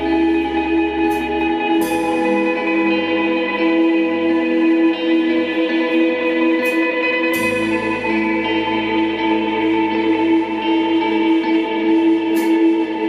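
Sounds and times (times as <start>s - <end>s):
cymbal strikes: 0.0s - 13.0s.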